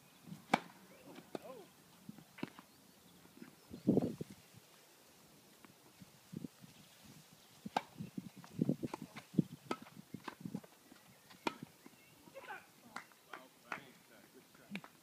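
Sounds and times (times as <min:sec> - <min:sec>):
rackets hitting tennis ball: 0:00.5 - 0:01.6, 0:09.6 - 0:10.7, 0:11.3 - 0:13.9.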